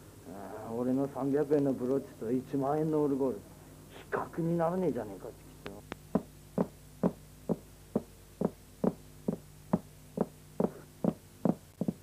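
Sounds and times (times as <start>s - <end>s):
faint low hum: 0.0s - 12.0s
dull knocks beat: 6.1s - 12.0s.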